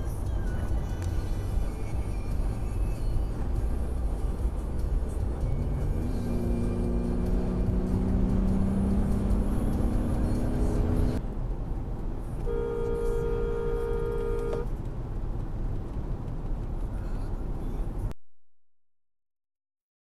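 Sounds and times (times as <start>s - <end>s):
road and engine noise in car: 0.0s - 18.2s
two-tone car horn: 12.4s - 14.7s.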